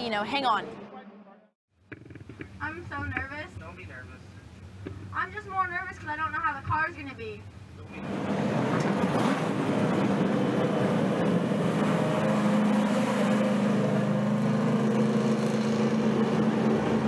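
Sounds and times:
race car engines droning: 0:07.8 - 0:17.0.

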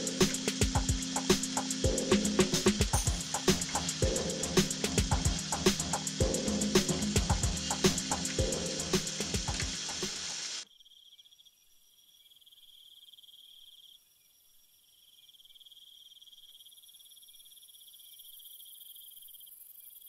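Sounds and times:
music: 0:00.0 - 0:10.6
crickets chirring: 0:00.0 - 0:11.4.

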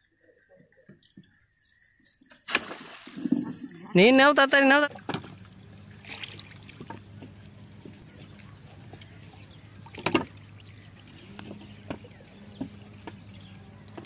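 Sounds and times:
steady low hum: 0:04.9 - 0:14.0.

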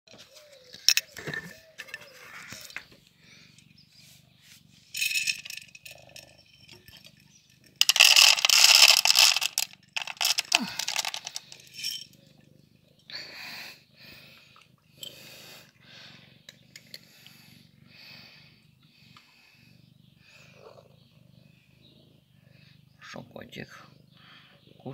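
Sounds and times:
dry cat food rattling in bowl: 0:04.9 - 0:12.2.

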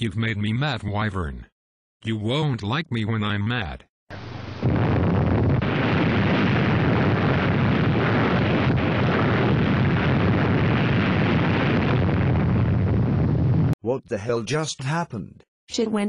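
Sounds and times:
deep explosion rumble: 0:04.1 - 0:13.8.

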